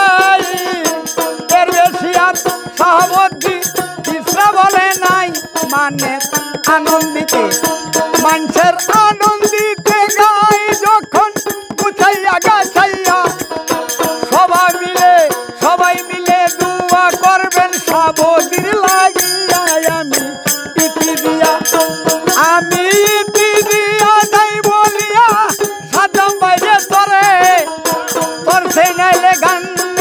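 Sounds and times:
fast rattling percussion: 0:00.0 - 0:30.0
hand drum: 0:00.0 - 0:30.0
man and woman singing: 0:00.0 - 0:30.0.

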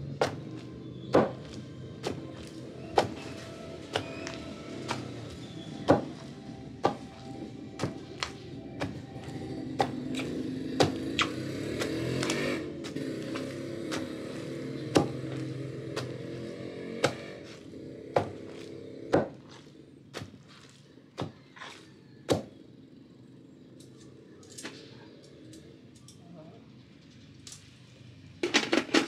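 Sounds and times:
wooden pestle pounding in mortar: 0:01.1 - 0:03.2, 0:03.8 - 0:05.2, 0:05.9 - 0:06.2, 0:07.8 - 0:14.3, 0:14.9 - 0:15.4, 0:18.2 - 0:19.6, 0:22.3 - 0:22.5.

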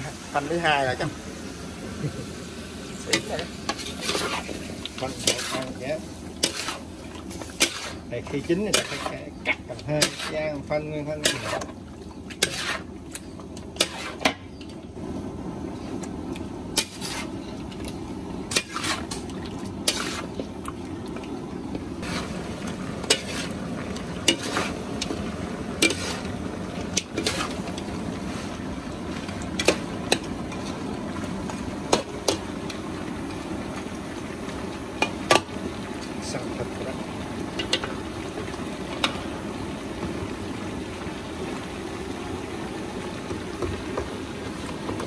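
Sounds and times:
meat sizzling: 0:00.0 - 0:45.0.

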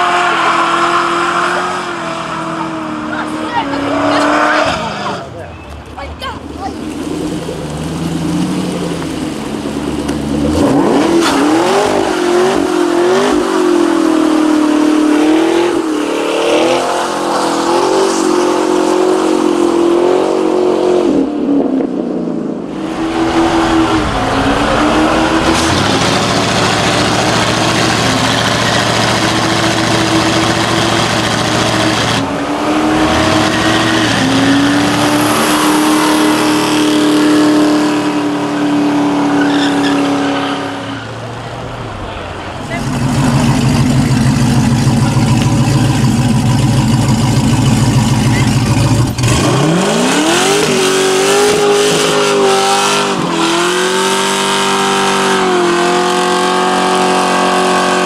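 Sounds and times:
car engine revving: 0:06.6 - 0:21.2, 0:22.2 - 0:58.0
spinning tyres hissing: 0:22.7 - 0:37.4.

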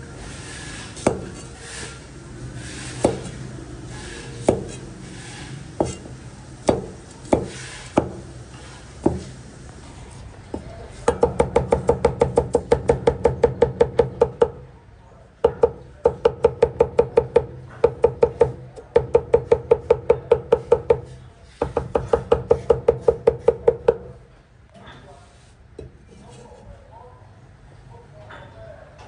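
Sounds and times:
cleaver chopping on cutting board: 0:06.7 - 0:08.2.

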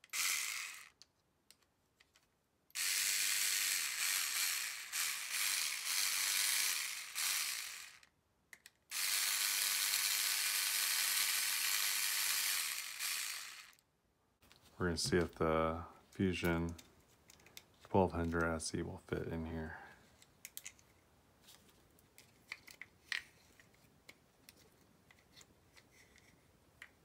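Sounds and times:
electric screwdriver running: 0:00.0 - 0:01.0, 0:02.8 - 0:08.1, 0:08.9 - 0:13.8.

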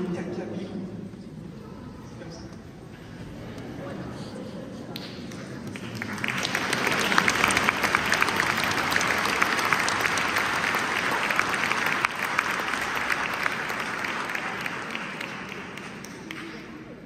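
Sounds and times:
audience applauding: 0:05.0 - 0:17.0.

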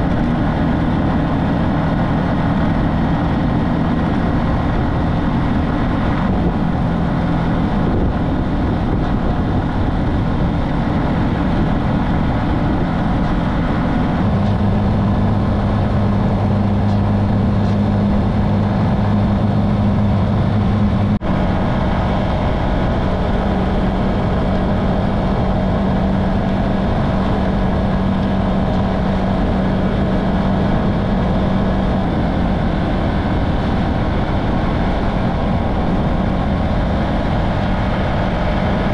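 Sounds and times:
motorcycle engine running: 0:00.0 - 0:38.9
wind and road noise: 0:00.0 - 0:38.9.

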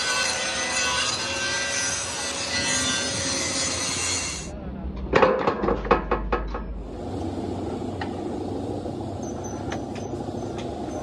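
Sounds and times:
low running noise: 0:02.9 - 0:11.0.

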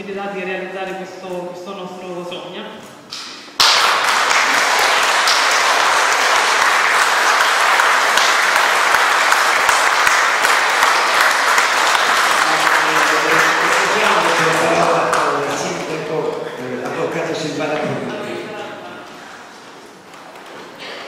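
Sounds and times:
audience applauding: 0:03.6 - 0:18.3.

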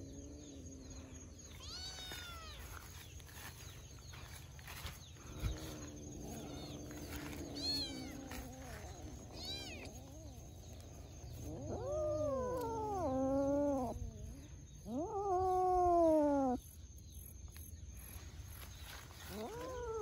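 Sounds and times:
cat meowing: 0:01.5 - 0:02.8, 0:06.2 - 0:10.3.

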